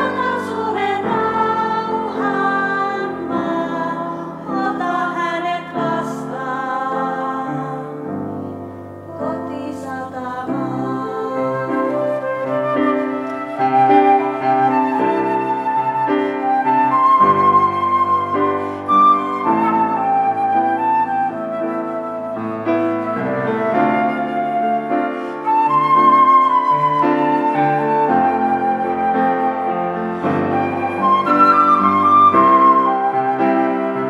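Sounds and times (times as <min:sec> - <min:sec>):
piano chords: 0:00.0 - 0:34.0
flute playing slow melody: 0:11.0 - 0:34.0.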